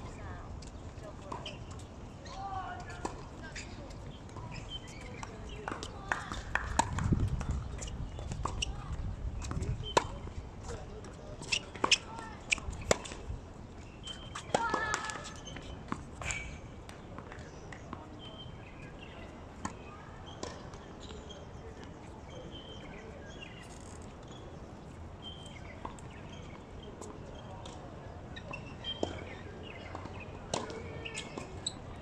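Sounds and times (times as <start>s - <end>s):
tennis balls bounced and struck: 4.2s - 22.6s, 25.4s - 31.9s.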